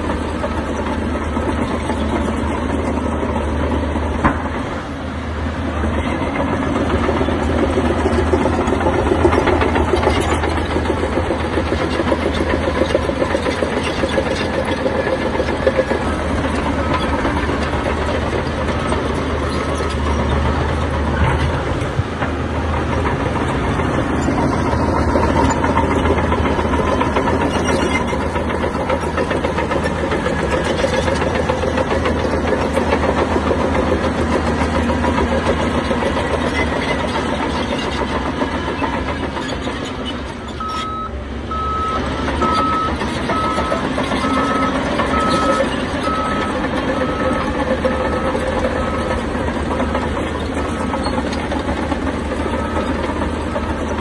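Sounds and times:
heavy diesel machinery running: 0.0 - 54.0
reversing alarm beeping: 40.5 - 49.2, 52.2 - 54.0.

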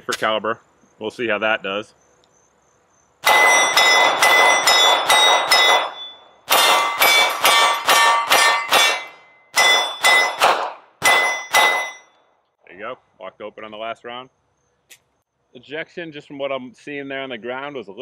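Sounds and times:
pistol shots: 3.2 - 12.0
steel targets ringing clang: 3.2 - 12.2.

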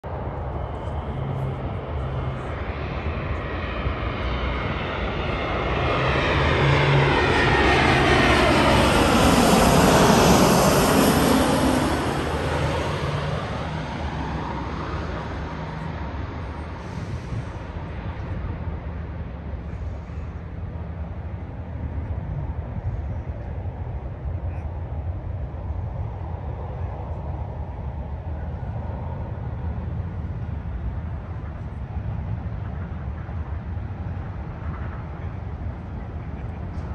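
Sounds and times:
jet plane passing overhead: 0.1 - 36.9.

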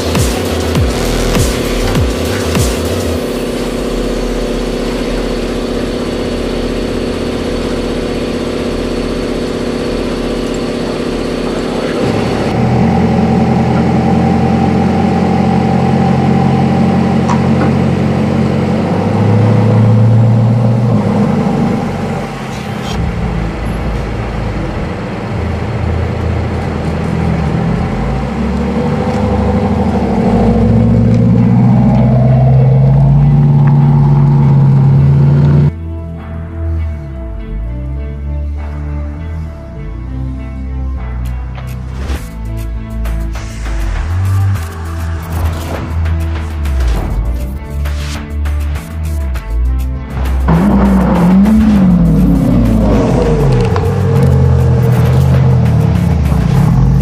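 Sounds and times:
car engine revving: 0.0 - 35.8, 39.2 - 57.0
hum of held tones: 0.0 - 41.4.

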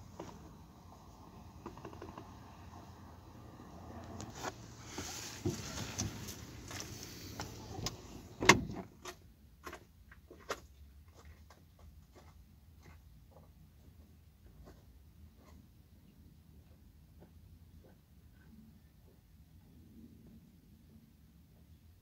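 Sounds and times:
car door slamming: 7.7 - 8.9.

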